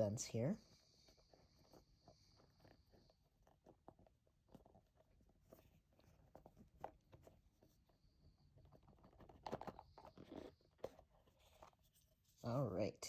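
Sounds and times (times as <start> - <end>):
box lid rubbing and rustling: 8.6 - 12.4.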